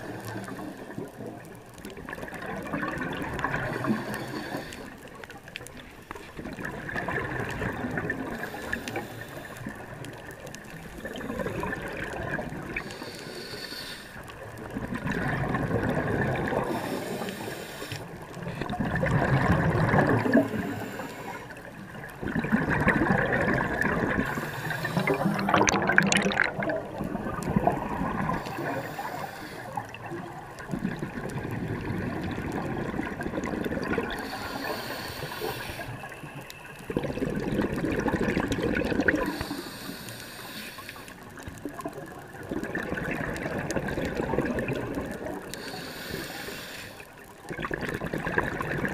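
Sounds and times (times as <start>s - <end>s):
scuba regulator breathing: 0.0s - 1.4s, 3.4s - 5.2s, 8.1s - 14.5s, 15.9s - 18.4s, 19.4s - 22.1s, 24.0s - 26.6s, 27.3s - 30.1s, 33.8s - 38.1s, 39.1s - 41.6s, 45.0s - 47.3s
gurgling exhaled bubbles: 0.0s - 13.5s, 14.2s - 39.8s, 41.1s - 46.5s, 47.1s - 48.9s.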